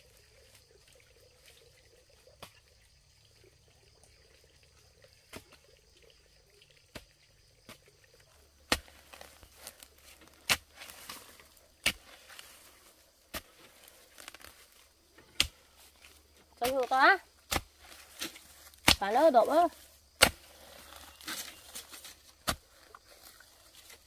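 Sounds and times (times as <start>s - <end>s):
leaves rustling: 8.4s - 24.0s
vegetable stems snapping: 14.1s - 14.7s.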